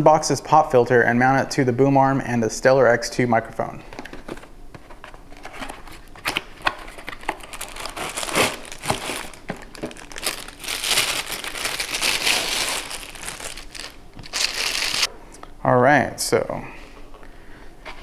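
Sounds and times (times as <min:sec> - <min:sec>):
packaging crinkling and rustling: 0:04.0 - 0:15.1.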